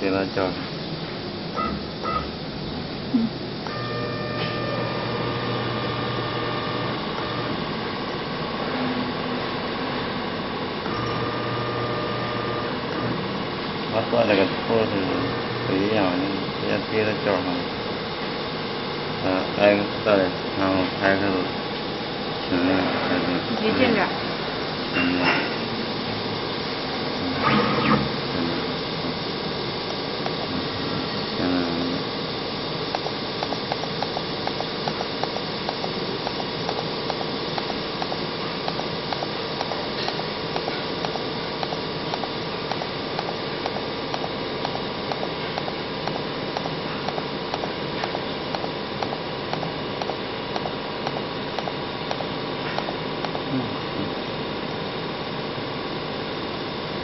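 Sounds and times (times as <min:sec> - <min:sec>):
motor hum with hiss: 0:00.0 - 0:57.0
regular light ticking: 0:32.9 - 0:53.4.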